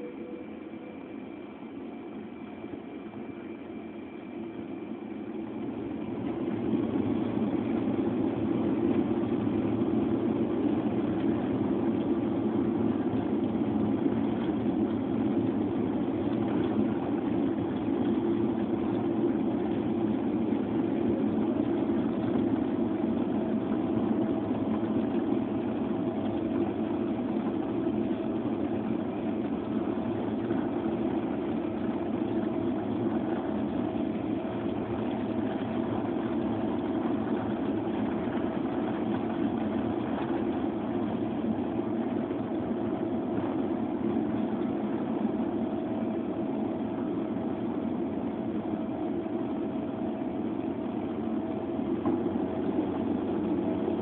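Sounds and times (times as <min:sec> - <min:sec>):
airliner engine rumble and hiss: 0:00.0 - 0:10.6
faint steady whine: 0:00.0 - 0:54.0.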